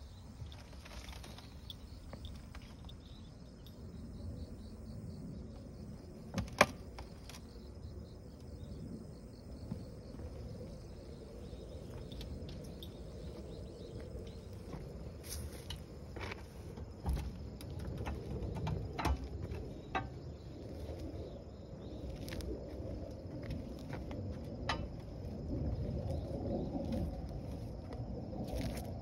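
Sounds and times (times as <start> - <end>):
crickets chirping: 0.0 - 29.0.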